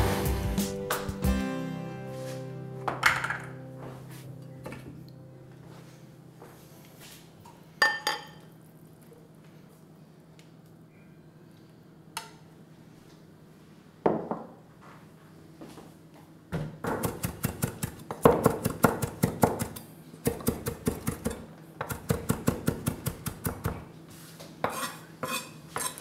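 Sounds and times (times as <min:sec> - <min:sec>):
knife chopping on wooden board: 0:16.9 - 0:23.8.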